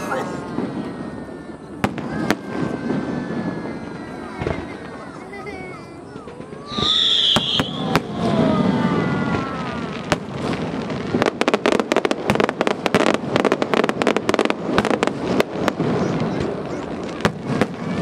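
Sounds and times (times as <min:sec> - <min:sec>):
fireworks booming and cracking: 0:00.0 - 0:18.0.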